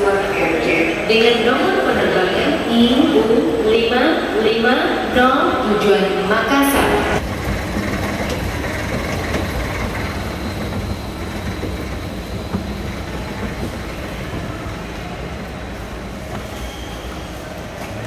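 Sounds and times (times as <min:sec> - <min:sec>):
airport terminal rumble: 0:00.0 - 0:18.0.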